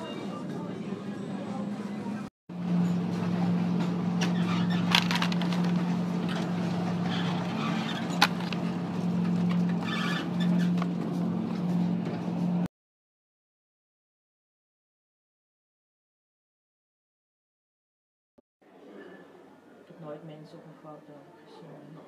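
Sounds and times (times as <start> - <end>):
refrigerated display case humming: 0.0 - 12.7.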